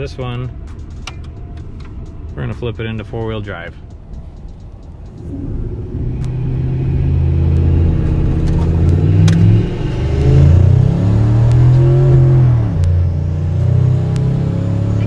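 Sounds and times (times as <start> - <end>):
truck engine accelerating: 4.1 - 15.0.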